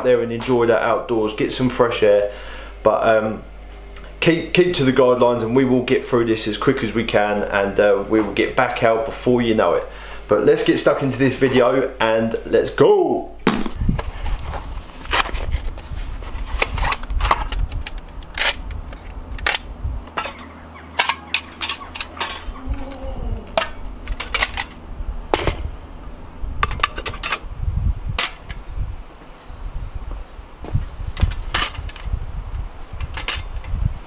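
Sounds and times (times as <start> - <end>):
metal stove parts clinking: 19.4 - 22.6, 23.5 - 24.8, 26.6 - 27.4, 28.2 - 28.6, 31.2 - 32.1, 33.0 - 33.7.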